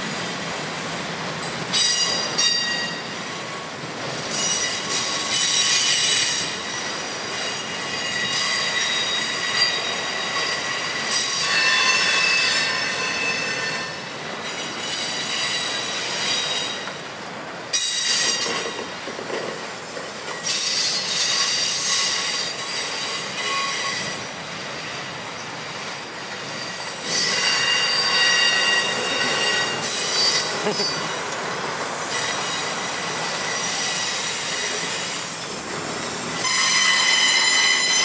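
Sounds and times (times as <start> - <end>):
train wheels squealing on rails: 1.0 - 38.0
freight cars rumbling: 24.1 - 36.5.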